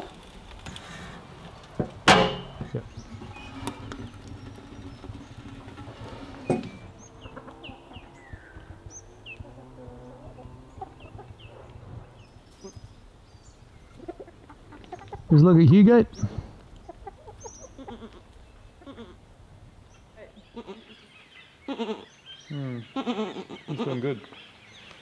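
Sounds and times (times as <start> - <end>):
sharp knock: 2.1 - 2.7
chickens clucking: 2.1 - 12.9, 13.8 - 15.4, 16.2 - 19.2
small birds chirping: 2.5 - 25.0.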